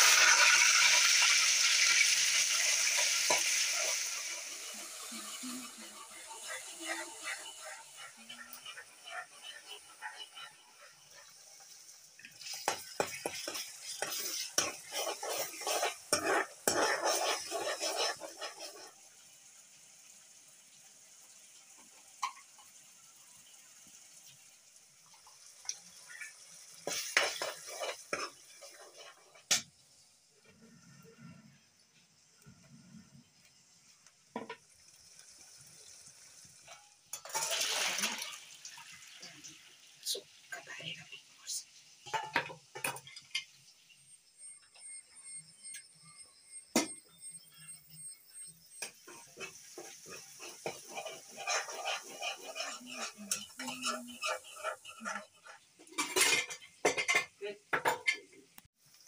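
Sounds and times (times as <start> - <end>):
water rushing into colander: 0.0 - 6.0, 35.0 - 40.6
metal spatula scraping pan: 0.0 - 11.8, 12.4 - 19.0, 26.1 - 29.6, 36.6 - 38.4, 42.1 - 43.5, 46.8 - 58.2
tomatoes sizzling in oil: 0.0 - 59.0.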